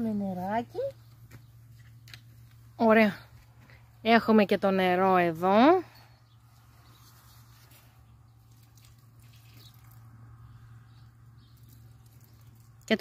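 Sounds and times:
water trickling into bucket: 8.3 - 10.5, 11.2 - 13.0
water drips: 8.4 - 10.2, 11.4 - 13.0.

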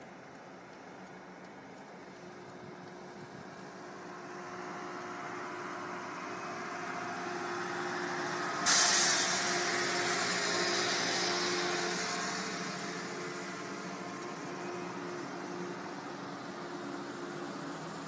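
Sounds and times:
escaping air hiss: 8.6 - 11.7.

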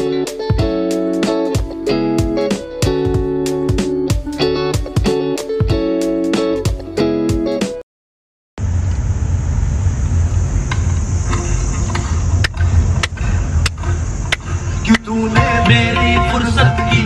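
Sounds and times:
guitar music: 0.0 - 7.8, 15.1 - 17.0
car cabin road noise: 8.6 - 16.6.

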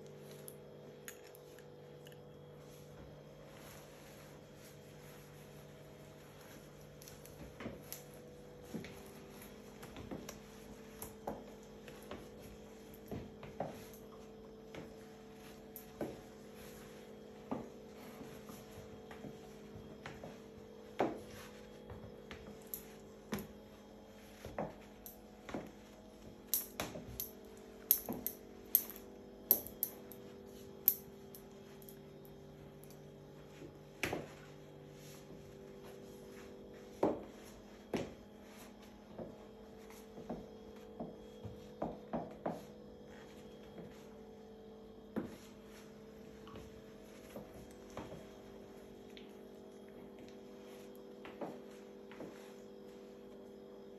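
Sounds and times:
low electrical hum: 0.0 - 53.9.

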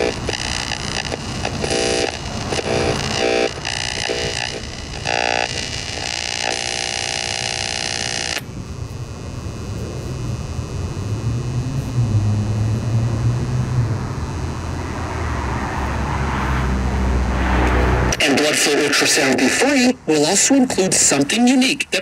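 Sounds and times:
radio buzzing tone: 0.0 - 22.0
radio static hiss: 0.0 - 22.0
low wavering rumble: 8.5 - 18.1.

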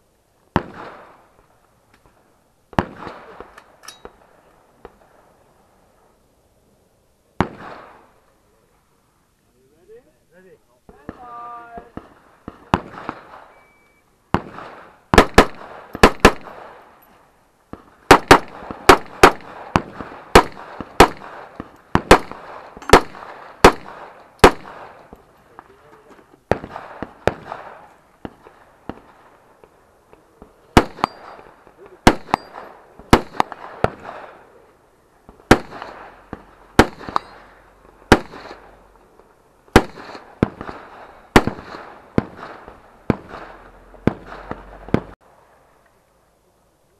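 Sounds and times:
rifle shots: 0.5 - 1.2, 2.7 - 5.0, 7.4 - 8.2, 11.1 - 16.9, 17.7 - 25.2, 26.4 - 29.3, 30.7 - 34.6, 35.3 - 38.8, 39.7 - 45.2.

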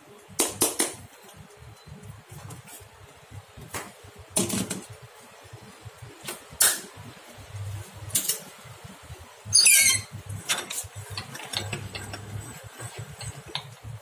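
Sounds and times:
metal tools knocking and clicking: 9.6 - 12.4.

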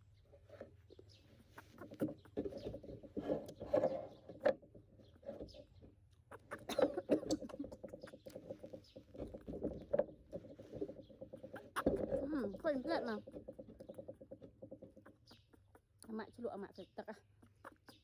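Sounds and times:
mouth clicks and smacks: 6.1 - 9.6, 13.3 - 18.0.

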